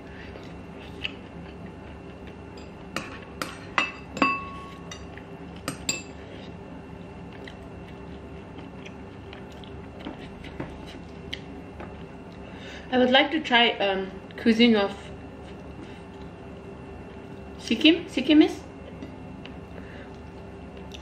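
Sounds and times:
faint steady hum: 0.0 - 21.0
spoons clinking on bowls and plate: 2.6 - 5.1.

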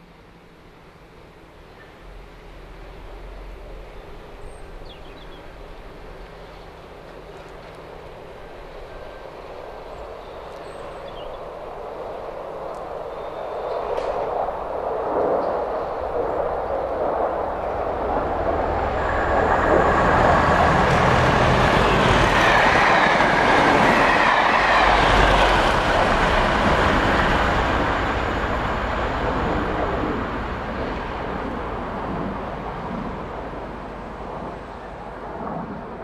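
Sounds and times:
diesel train engine: 0.0 - 12.8, 15.8 - 35.4
deep rumble: 14.8 - 36.0.

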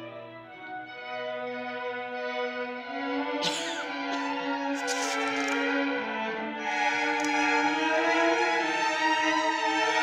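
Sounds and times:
string orchestra playing held notes: 0.0 - 10.0.

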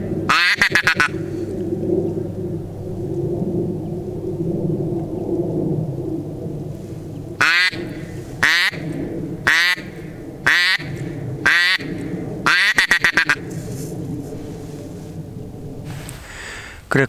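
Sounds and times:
duck quacking loudly: 0.3 - 1.2, 7.4 - 7.8, 8.4 - 8.8, 9.5 - 9.9, 10.5 - 13.4.

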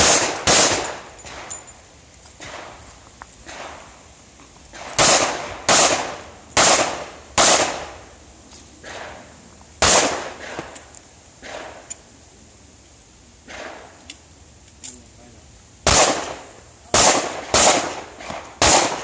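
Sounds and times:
handgun shots: 0.0 - 1.5, 9.8 - 10.8, 15.9 - 16.4, 17.0 - 19.0.

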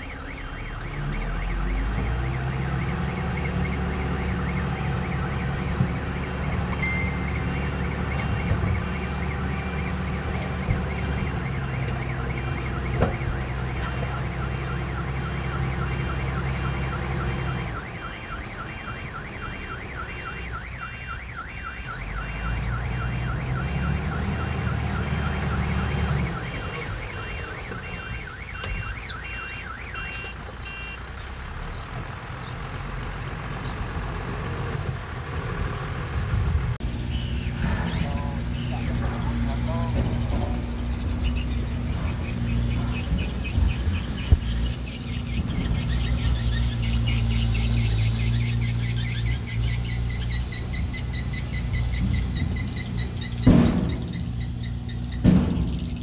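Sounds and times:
reversing alarm beeping: 0.0 - 31.0, 37.1 - 44.8
heavy machine engine running: 22.0 - 56.0.

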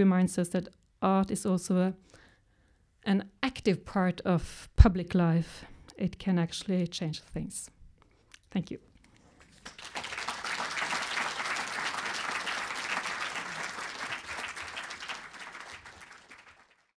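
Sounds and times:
audience applauding: 9.4 - 17.0.

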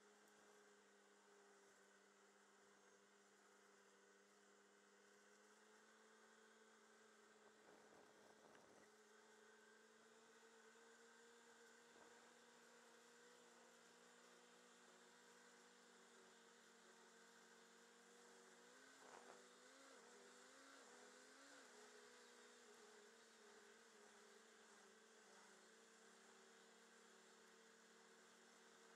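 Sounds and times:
vehicle engine hum: 17.6 - 27.2.

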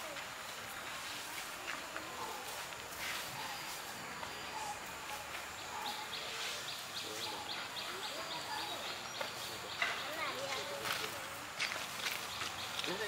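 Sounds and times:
faint distant voices: 0.0 - 13.0
bird chirping: 3.0 - 11.0, 11.7 - 13.0.

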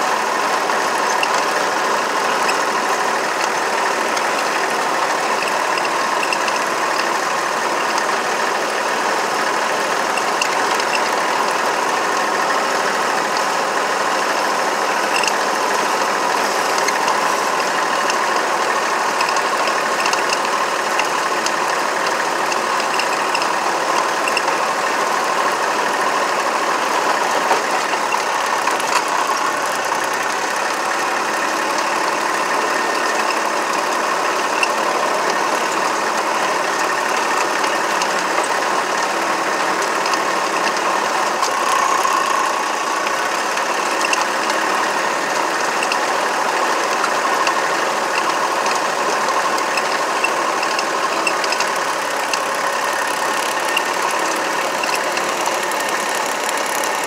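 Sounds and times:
small vehicle engine running: 0.0 - 57.0
mechanical clatter: 25.8 - 57.0.

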